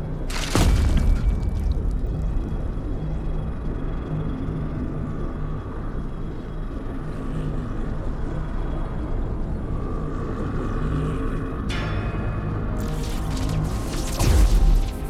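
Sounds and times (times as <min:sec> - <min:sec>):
deep steady rumble: 0:00.0 - 0:11.8
low droning hum: 0:00.0 - 0:15.0.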